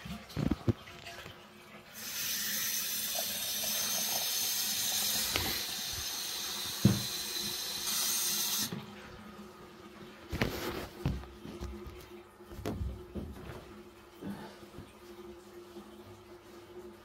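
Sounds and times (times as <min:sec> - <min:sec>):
water running into basin: 0:00.0 - 0:17.0
knock: 0:06.8 - 0:07.1.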